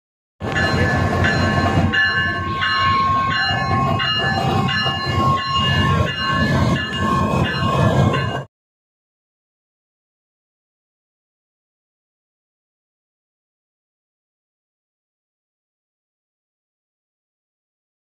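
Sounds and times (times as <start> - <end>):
diesel locomotive rumble: 0.4 - 8.5.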